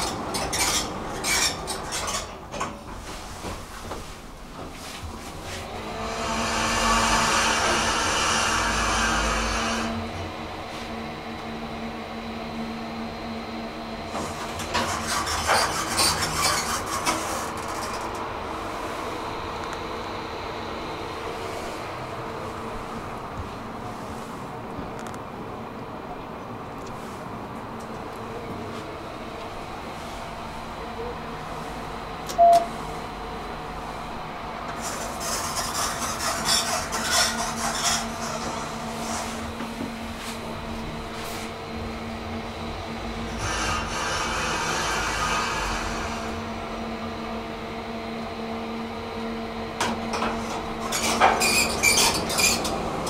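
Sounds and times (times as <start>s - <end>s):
elevator car humming: 0.0s - 53.0s
elevator button click: 32.3s - 32.7s
short loud beep: 32.4s - 32.7s
elevator doors rattling open: 49.9s - 53.0s.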